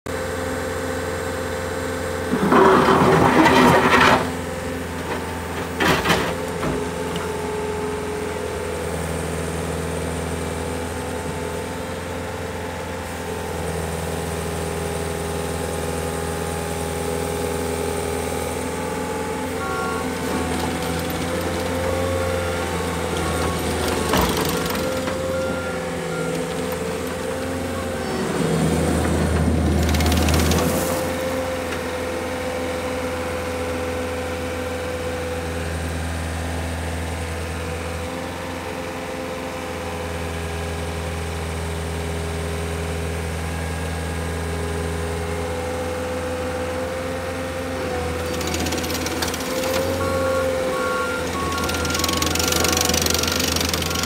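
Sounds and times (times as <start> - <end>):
diesel engine running: 0.1 - 54.0.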